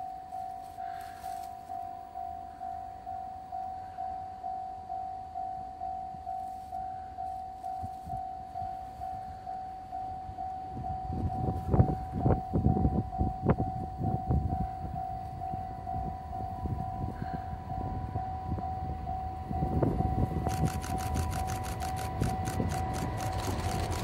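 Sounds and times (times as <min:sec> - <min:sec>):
level-crossing alarm ringing: 0:00.0 - 0:24.0
train rumble: 0:00.0 - 0:24.0
wheels clacking over rails: 0:20.6 - 0:24.0.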